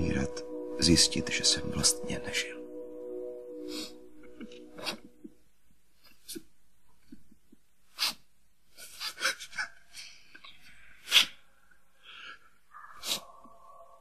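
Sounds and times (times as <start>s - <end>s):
held music tone: 0.0s - 5.8s.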